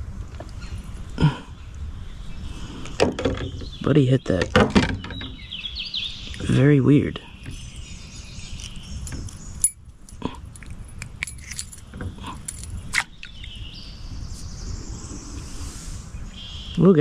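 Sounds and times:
faint birdsong: 0.0s - 17.0s
metal lure clinking and jingling: 9.6s - 12.8s.

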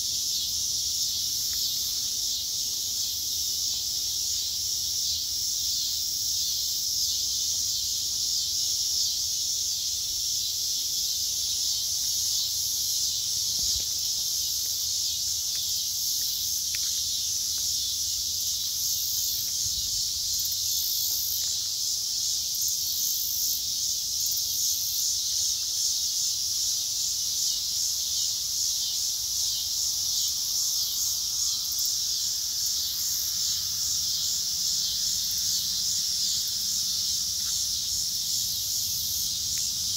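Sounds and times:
high-pitched insect chorus: 0.0s - 39.9s.

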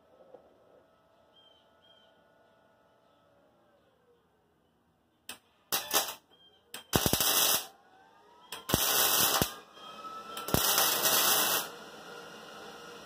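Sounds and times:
welding arc crackling: 5.7s - 6.2s, 6.9s - 7.7s, 8.6s - 9.6s, 10.4s - 11.8s.

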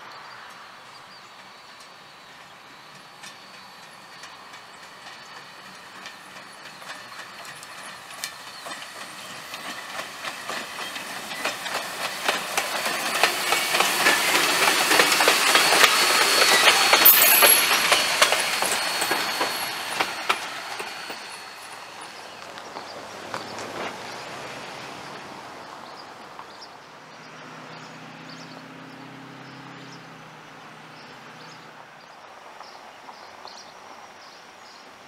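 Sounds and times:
train wheels clattering on rails: 0.4s - 26.6s.

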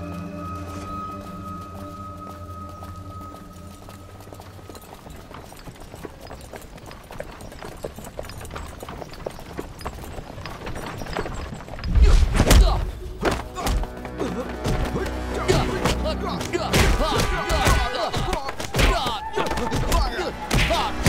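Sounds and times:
dramatic film music: 0.0s - 5.0s, 12.0s - 21.0s.

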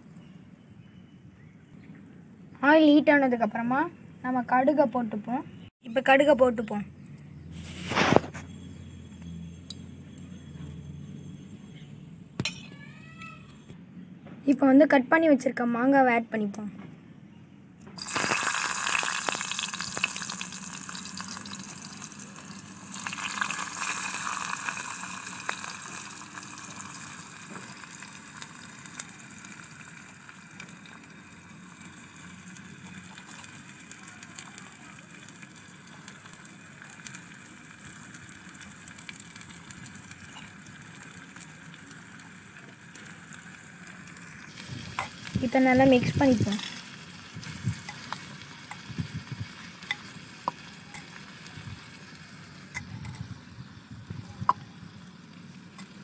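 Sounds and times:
food sizzling in hot oil: 18.0s - 56.0s.

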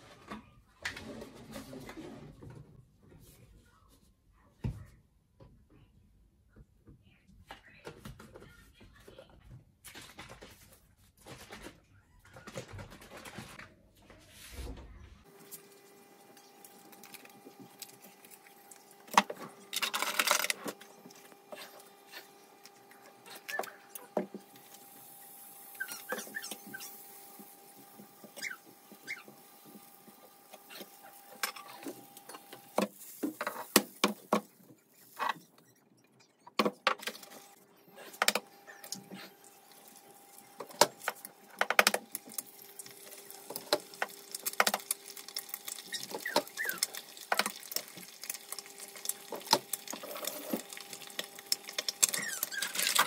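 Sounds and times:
butter and eggs sizzling: 15.3s - 35.4s, 38.2s - 53.0s
eggs cracking and utensil taps: 40.6s - 53.0s.

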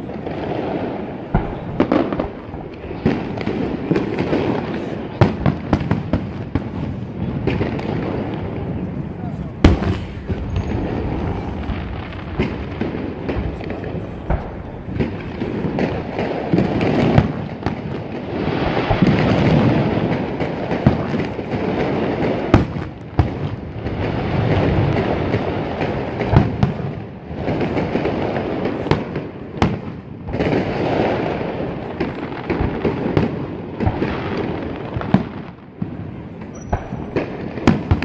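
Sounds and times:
fireworks booms and crackle: 0.0s - 38.0s
fireworks shell bursts: 9.7s - 11.7s, 36.5s - 38.0s.

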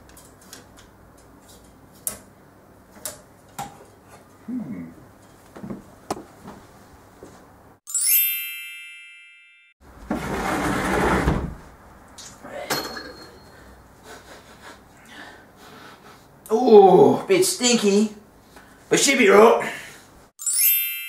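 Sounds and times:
bright chime sound effect: 7.9s - 9.8s, 20.4s - 21.0s.

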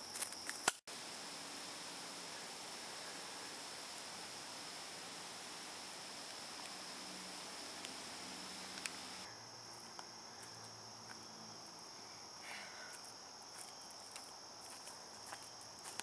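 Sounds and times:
footsteps on leaf litter: 13.0s - 16.0s.

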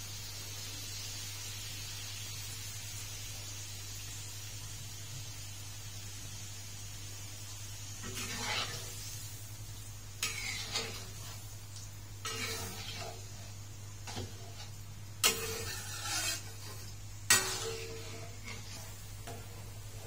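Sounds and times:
metal ladle scraping wok: 8.0s - 9.2s, 10.2s - 11.5s, 12.2s - 20.0s.

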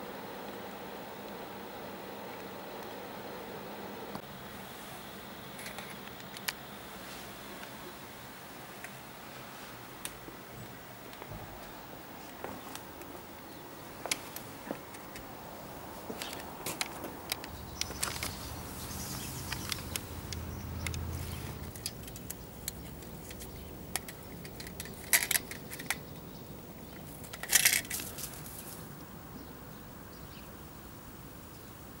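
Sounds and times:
metal mouse trap rattling: 21.7s - 26.1s, 27.0s - 28.4s.

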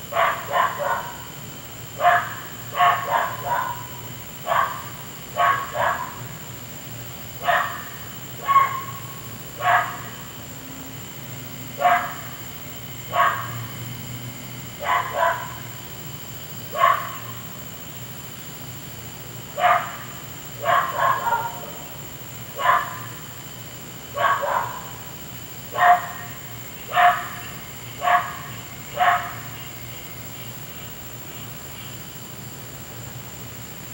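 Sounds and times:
steady low hum: 0.0s - 33.9s
dog barking: 0.1s - 1.3s, 2.0s - 6.3s, 7.4s - 10.2s, 11.8s - 12.3s, 13.1s - 13.7s, 14.8s - 15.7s, 16.7s - 17.4s, 19.6s - 21.9s, 22.6s - 23.2s, 24.1s - 25.0s, 25.7s - 29.6s.

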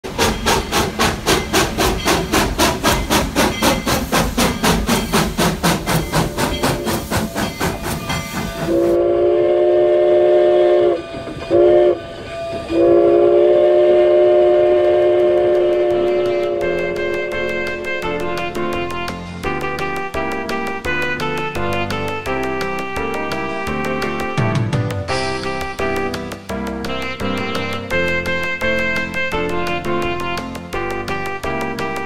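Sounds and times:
steam locomotive exhaust chuffing: 0.0s - 24.4s
chime steam whistle blasts: 0.2s - 20.0s.

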